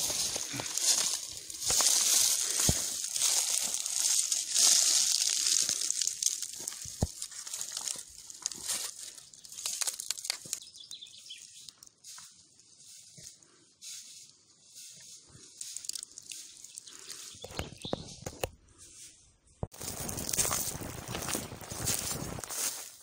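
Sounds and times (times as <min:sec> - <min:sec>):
dry leaves crackling and rustling: 0:00.0 - 0:13.1, 0:15.6 - 0:17.4, 0:19.7 - 0:23.0
footsteps through dry leaves: 0:00.0 - 0:17.4, 0:18.8 - 0:23.0.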